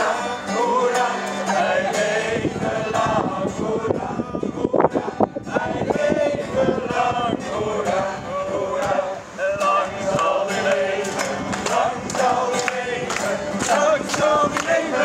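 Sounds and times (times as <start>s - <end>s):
group singing: 0.0s - 15.0s
strummed acoustic guitar: 0.0s - 15.0s
hands clapping: 10.2s - 15.0s.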